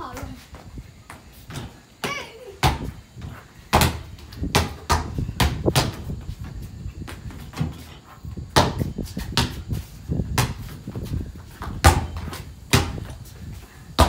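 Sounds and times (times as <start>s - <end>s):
basketball bouncing on tiled floor: 0.5s - 7.8s, 8.5s - 11.0s, 11.6s - 13.2s
basketball hitting backboard: 11.8s - 13.0s.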